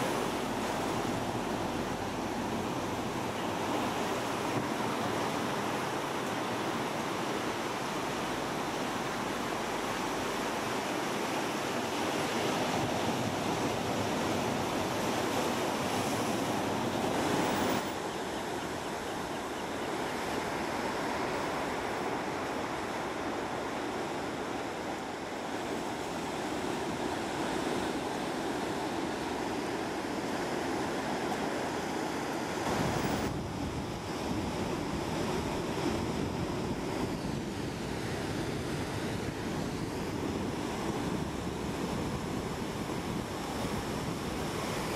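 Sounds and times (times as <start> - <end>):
ocean surf breaking: 0.0 - 19.3, 20.0 - 44.9
wind on microphone: 32.6 - 44.9.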